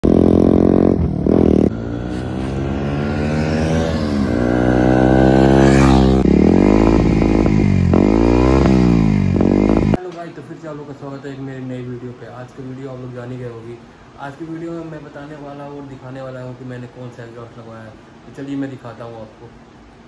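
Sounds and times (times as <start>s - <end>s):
motorcycle engine revving: 0.0s - 10.0s
motorcycle throttle blips: 0.0s - 10.0s.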